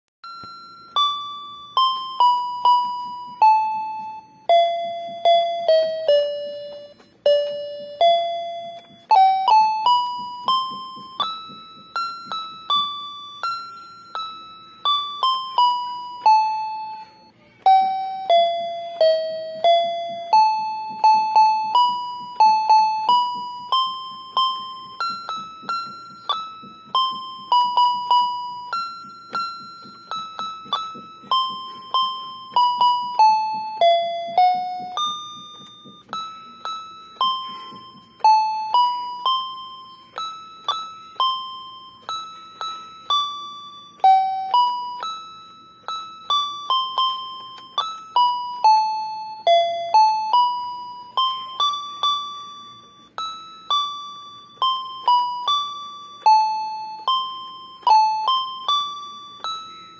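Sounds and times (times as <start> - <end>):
simple single-note melody: 0.2 - 59.9.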